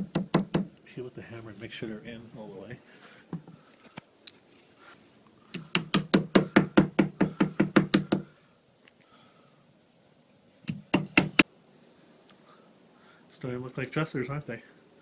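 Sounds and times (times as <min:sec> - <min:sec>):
hammer strikes on wood: 0:00.0 - 0:00.7, 0:05.6 - 0:08.3, 0:10.7 - 0:11.5.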